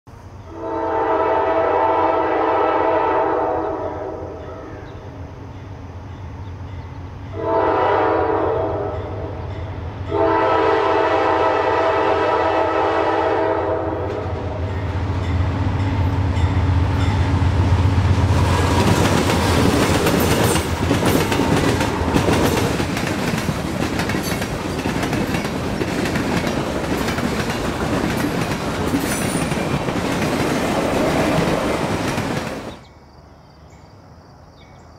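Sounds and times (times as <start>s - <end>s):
train air horn: 0.5s - 4.7s, 7.3s - 9.5s, 10.1s - 14.7s
wheels clicking over rail joints: 18.8s - 32.8s.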